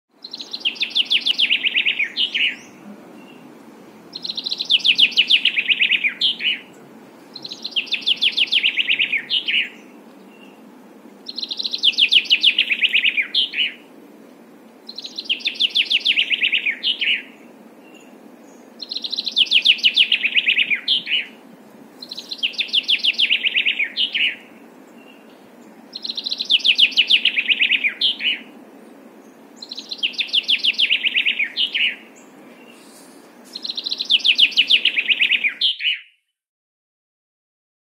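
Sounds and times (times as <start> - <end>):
faint steady hiss: 0.1 - 35.7
songbird singing trilled phrase: 0.2 - 3.5, 4.1 - 10.6, 11.3 - 13.8, 14.9 - 18.1, 18.8 - 21.4, 22.0 - 24.5, 25.9 - 28.5, 29.6 - 36.2.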